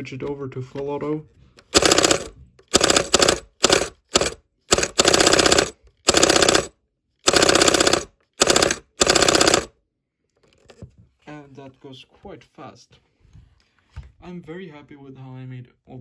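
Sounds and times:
rapid mechanical clatter: 1.7s - 9.7s.

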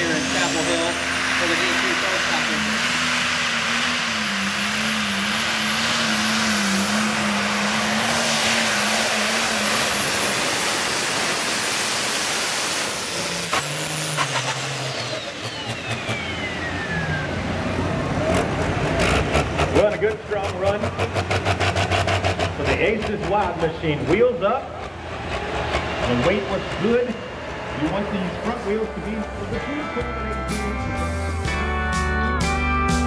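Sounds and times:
high whine winding down: 0.0s - 20.3s
tractor engine under load: 0.0s - 31.3s
tractor engine running lower: 0.0s - 33.0s.

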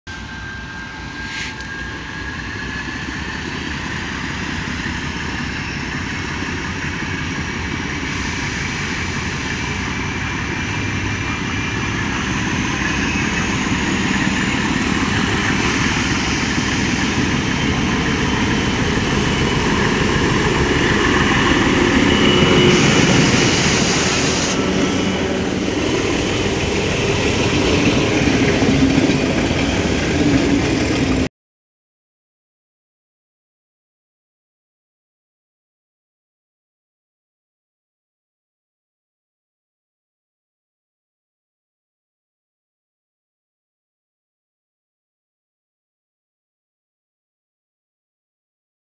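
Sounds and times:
diesel locomotive engine: 0.1s - 31.3s
train wheels clattering on rails: 25.8s - 31.3s.

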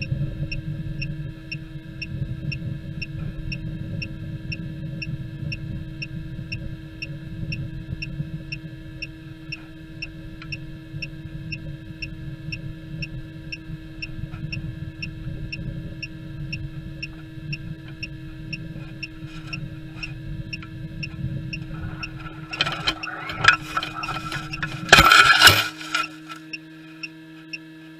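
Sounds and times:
steady electronic hum: 0.0s - 27.9s
faint regular ticking: 8.0s - 27.7s
airflow rumble: 14.6s - 25.8s
rustling and scraping: 18.8s - 20.1s, 21.6s - 26.5s.

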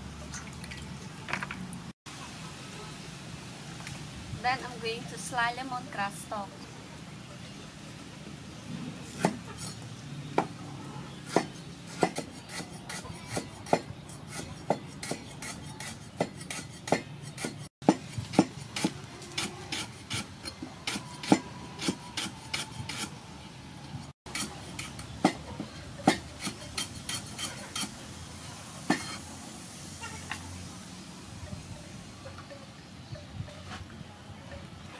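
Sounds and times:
cleaver chopping on wooden block: 11.3s - 20.3s, 20.9s - 23.1s
blade scraping wood: 11.3s - 23.2s, 26.1s - 28.0s.

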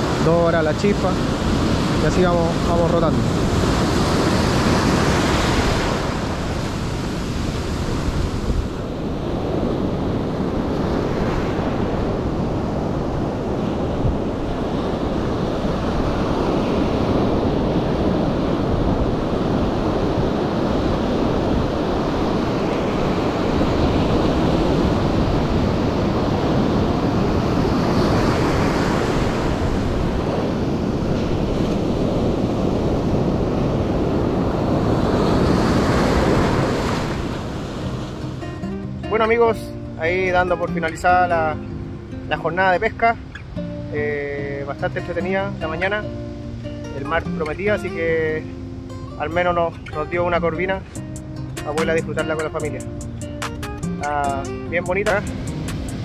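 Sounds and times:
wind buffeting microphone: 0.0s - 39.1s
ocean surf breaking on beach: 0.0s - 56.0s.

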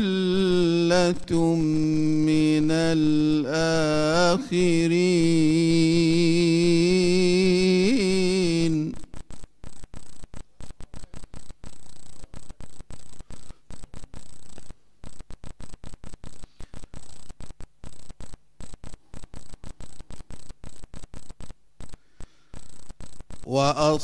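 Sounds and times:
man chanting: 0.0s - 9.0s, 23.5s - 24.0s
crackling electrical hiss and hum: 0.0s - 24.0s.

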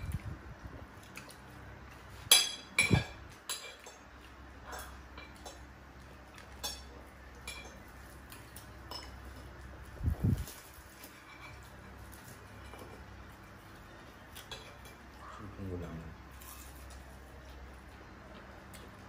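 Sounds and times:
dishes and cutlery clinking: 2.1s - 5.7s, 6.4s - 9.6s, 10.9s - 13.6s, 14.3s - 15.1s.

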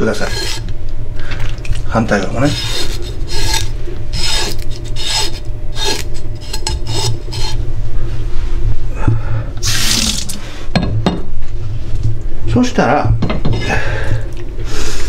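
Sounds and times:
knife scraping fish skin: 0.0s - 0.7s, 2.4s - 7.6s.

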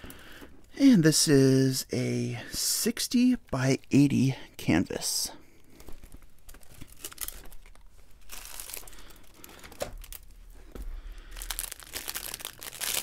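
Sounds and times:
plastic film rustling and crinkling: 5.6s - 13.0s.

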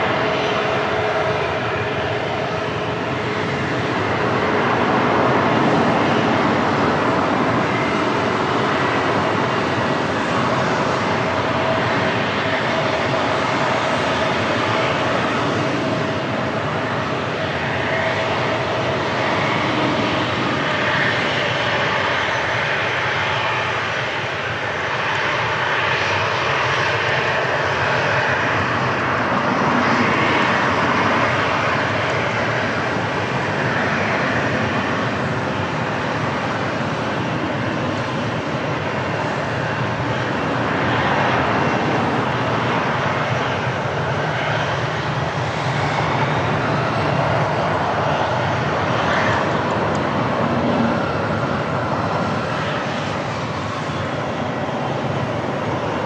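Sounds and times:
airliner engines running: 0.0s - 56.0s.

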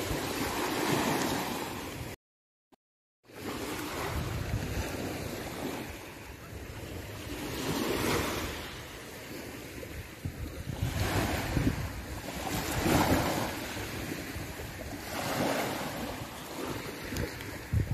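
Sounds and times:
wind buffeting microphone: 3.8s - 17.9s
waves washing on pebble beach: 7.0s - 17.9s.

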